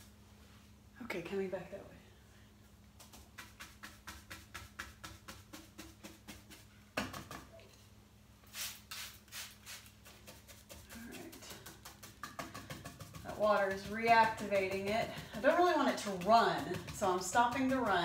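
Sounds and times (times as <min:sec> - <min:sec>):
spray bottle squirts: 0:08.5 - 0:10.5
paint brush tapping on wood: 0:10.1 - 0:18.0.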